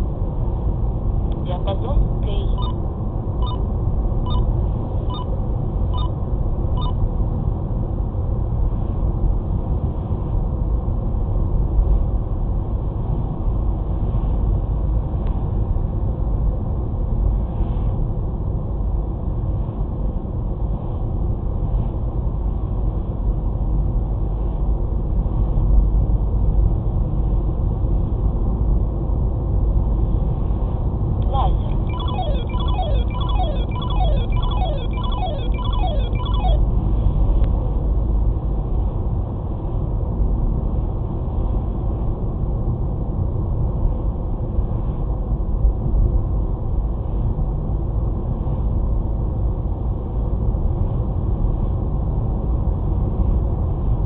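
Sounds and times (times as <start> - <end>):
radar detector alert beeps: 2.4 - 2.8, 3.4 - 3.6, 4.3 - 4.5, 5.1 - 5.3, 6.8 - 7.0, 31.7 - 36.6.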